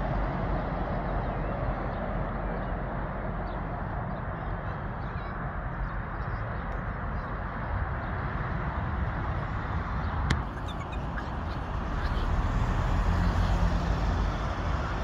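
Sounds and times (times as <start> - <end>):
car passing: 8.2 - 15.0
outdoor rumble: 8.9 - 15.0.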